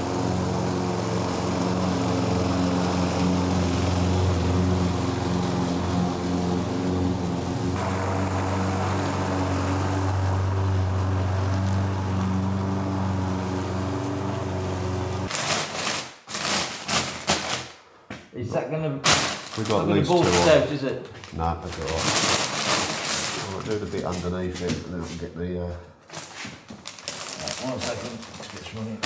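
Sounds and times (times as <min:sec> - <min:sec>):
engine droning hum: 0:00.0 - 0:15.3.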